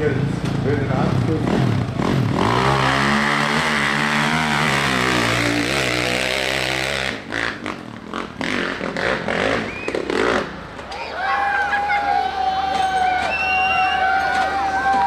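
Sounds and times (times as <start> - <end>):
dirt bike engine revving: 0.0 - 10.8.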